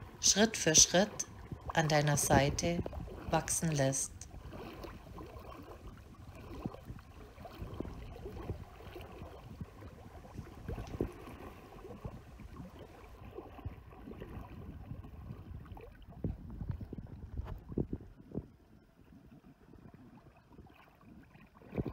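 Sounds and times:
stream running over pebbles: 0.0s - 18.7s
small splashes and knocks: 4.2s - 18.5s.

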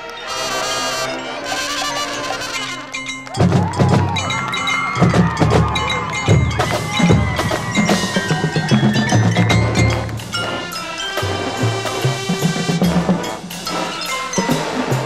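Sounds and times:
ringing mallet percussion: 0.0s - 15.0s
marching drums playing: 2.3s - 15.0s.

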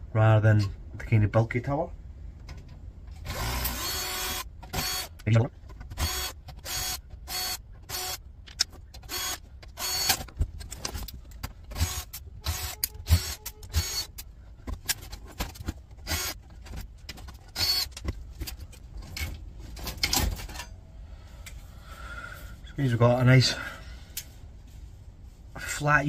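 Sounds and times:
cordless drill whirring: 3.2s - 5.1s, 6.0s - 8.2s, 9.0s - 10.2s, 11.7s - 14.2s, 16.0s - 16.4s, 17.5s - 17.9s.

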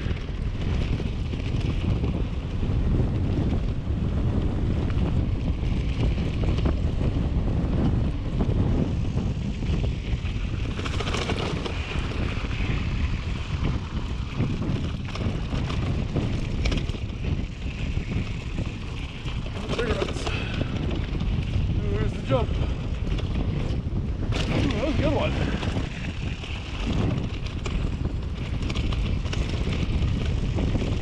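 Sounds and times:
bike clicks and rattles: 0.0s - 31.0s
tyres rumbling on packed dirt: 0.0s - 31.0s
wind buffeting microphone: 0.0s - 31.0s.

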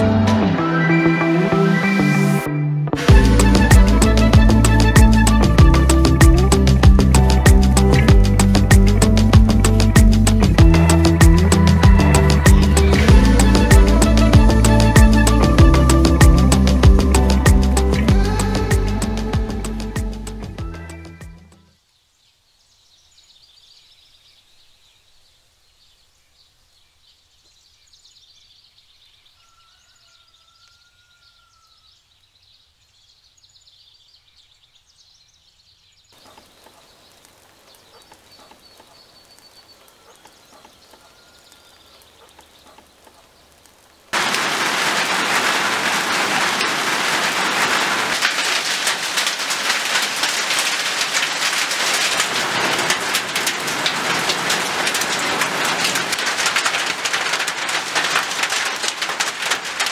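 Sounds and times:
heavy rain pouring off roof: 0.0s - 2.4s, 3.0s - 21.3s, 36.2s - 59.9s
bird calls: 22.0s - 44.2s.

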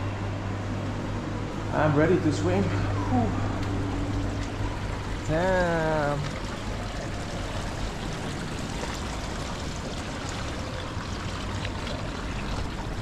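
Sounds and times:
water trickling into gutter: 3.8s - 13.0s.

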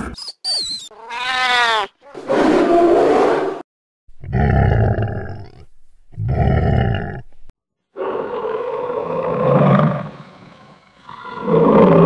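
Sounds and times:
alligator roaring: 6.2s - 7.3s, 8.0s - 12.0s.

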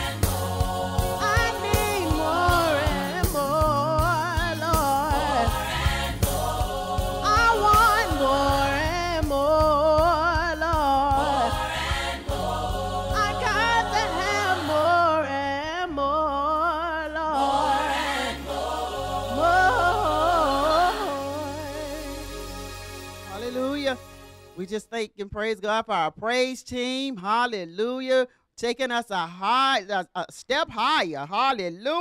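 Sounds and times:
instrumental backing with bass line: 0.0s - 24.6s
woman singing with vibrato: 1.2s - 5.6s, 7.2s - 11.6s, 13.2s - 17.6s, 19.3s - 22.3s.

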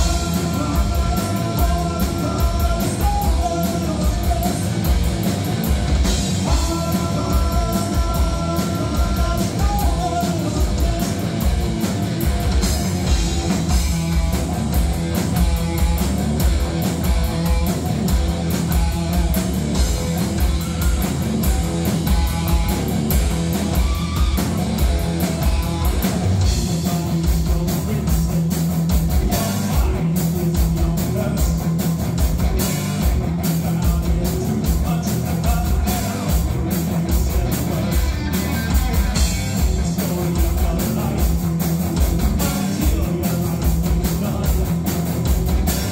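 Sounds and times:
person singing: 0.0s - 4.7s, 6.4s - 11.3s
bass guitar: 0.0s - 45.9s
electric guitar: 0.0s - 45.9s.

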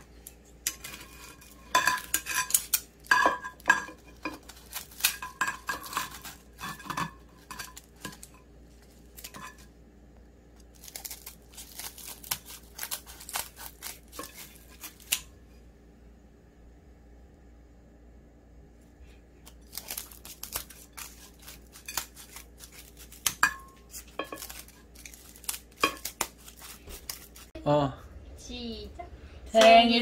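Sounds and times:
blades and tongs clinking on plate: 0.7s - 8.4s, 9.2s - 9.7s, 20.5s - 26.2s.

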